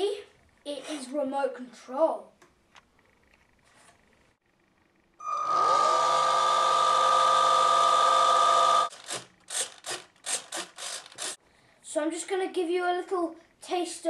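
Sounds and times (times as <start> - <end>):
electric motor propeller whine: 5.2 - 8.9
servos whirring: 5.2 - 11.4.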